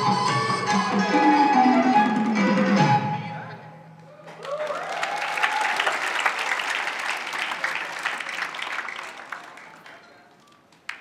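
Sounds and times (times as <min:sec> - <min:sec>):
audience applauding: 0:04.3 - 0:11.0.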